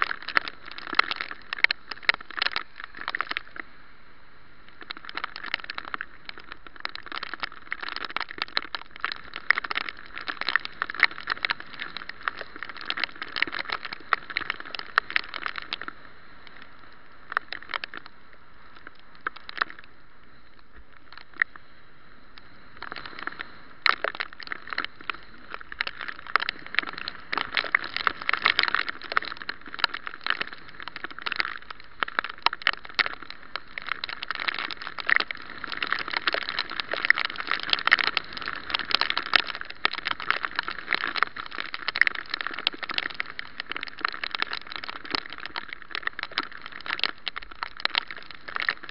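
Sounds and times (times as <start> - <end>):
raindrops crackling on camera: 0.0 - 48.9.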